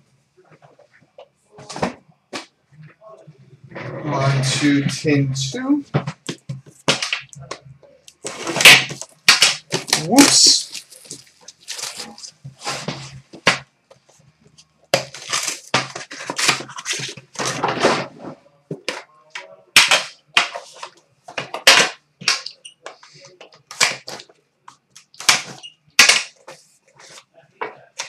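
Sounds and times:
plastic wrap tearing: 8.2 - 12.4, 15.0 - 17.5.

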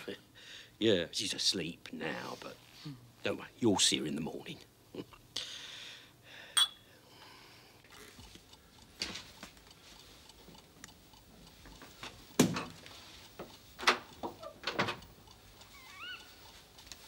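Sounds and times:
faint ticks: 8.2 - 17.0.

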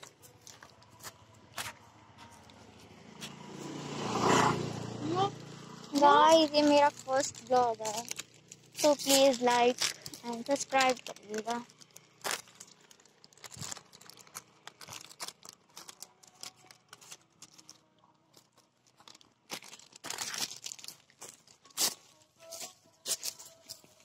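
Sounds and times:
plastic chips packet crinkling: 5.9 - 24.0.

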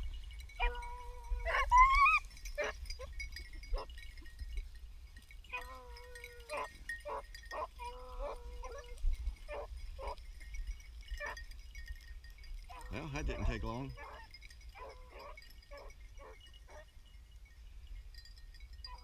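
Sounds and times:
dogs yipping: 0.6 - 4.0, 5.5 - 10.2, 11.2 - 11.4, 12.7 - 16.9.

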